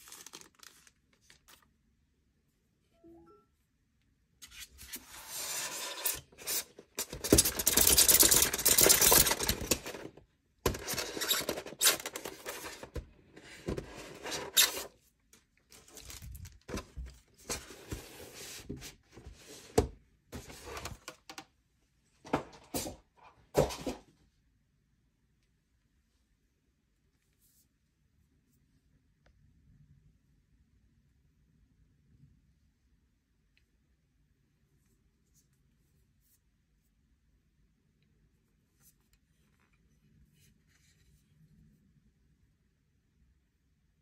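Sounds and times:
plastic wrap crinkling: 0.0s - 1.7s, 15.7s - 16.7s
styrofoam rubbing and scraping: 4.5s - 8.1s.

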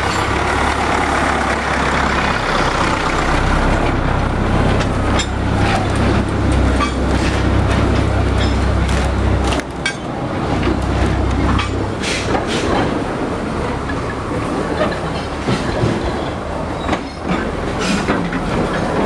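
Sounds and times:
train wheels rumbling on rails: 0.0s - 19.0s
wheels clacking over rail joints: 0.0s - 19.0s.

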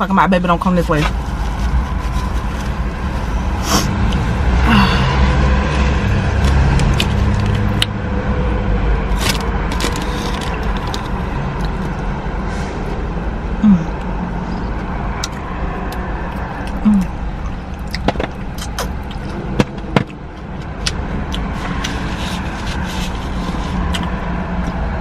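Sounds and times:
low rumble of street traffic: 0.0s - 25.0s
chewing and lip-smacking: 6.4s - 8.0s, 9.1s - 12.1s, 14.8s - 25.0s
wet mouth clicks: 15.2s - 22.8s.

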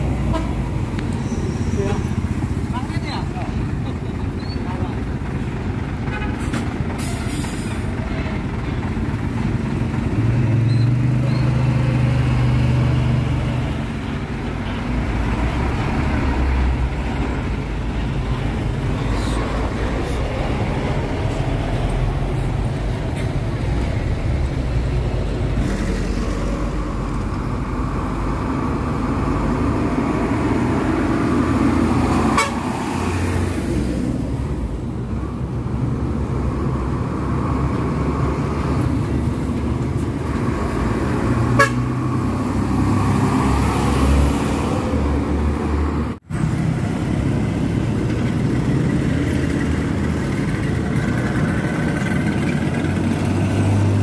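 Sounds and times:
diesel dump trucks passing: 0.0s - 54.0s
vehicle horns: 0.2s - 0.6s, 32.3s - 32.7s, 41.5s - 42.0s.

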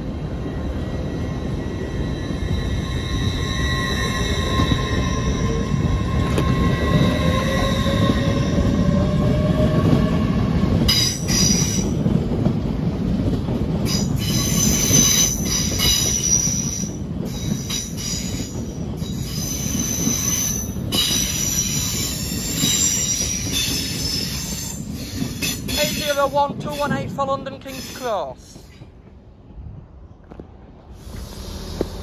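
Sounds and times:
train wheels rumbling: 0.0s - 32.0s
high-pitched wheel squeal: 1.3s - 10.3s.

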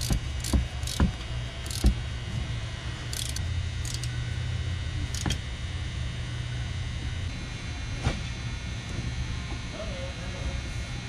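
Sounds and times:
ratchet clicking: 0.0s - 2.0s, 3.1s - 4.1s, 5.1s - 5.4s
steady low hum: 0.0s - 11.0s.

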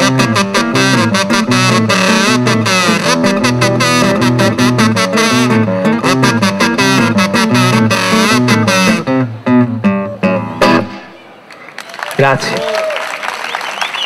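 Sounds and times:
acoustic guitar strumming: 0.0s - 11.2s.

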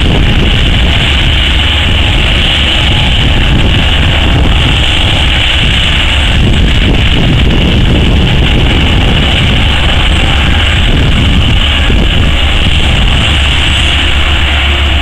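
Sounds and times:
diesel shovel and hydraulics running: 0.0s - 15.0s.

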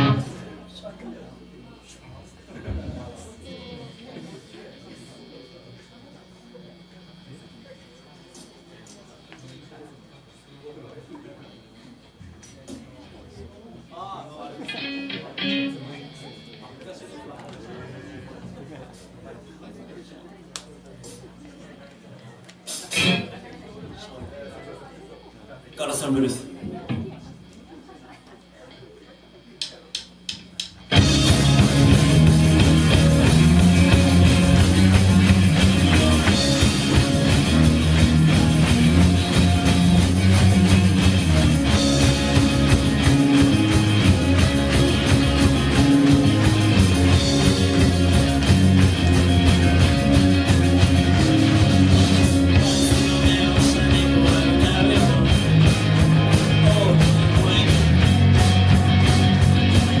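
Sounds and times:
bass guitar: 0.0s - 0.8s, 22.7s - 23.5s, 30.9s - 60.0s
electric guitars: 0.0s - 4.3s, 14.6s - 16.6s, 22.7s - 23.4s, 30.8s - 60.0s
drum kit: 29.9s - 60.0s.

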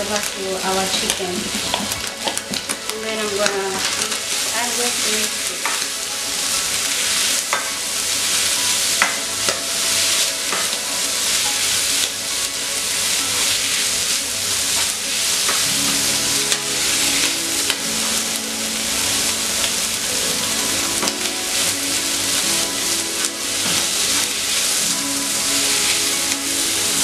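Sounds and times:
chicken sizzling in hot oil: 0.0s - 27.0s
spatula scraping and tapping pan: 5.4s - 5.9s, 7.5s - 7.8s, 9.0s - 10.8s.

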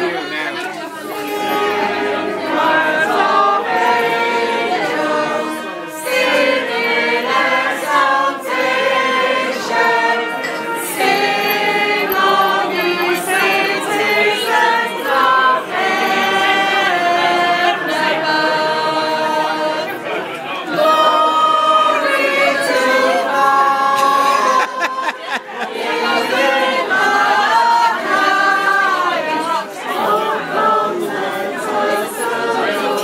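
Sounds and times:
group singing in harmony: 0.0s - 33.0s.

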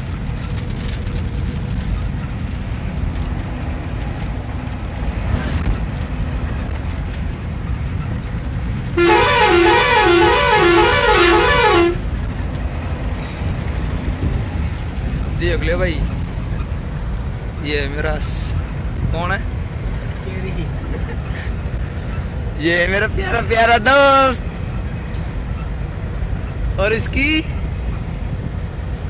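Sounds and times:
vehicle rumbling from inside cab: 0.0s - 29.0s
warbling musical horn: 9.0s - 12.0s.

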